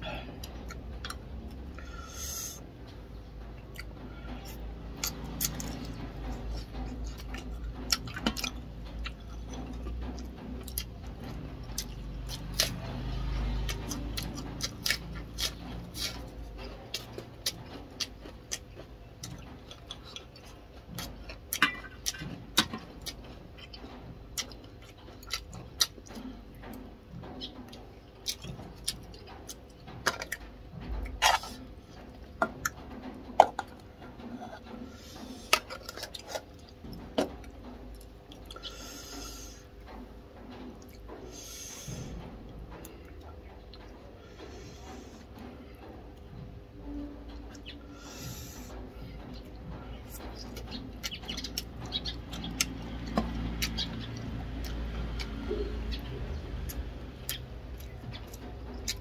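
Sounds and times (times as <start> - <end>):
chewing and mouth noises: 3.6 - 26.8, 27.4 - 30.4, 47.4 - 59.0.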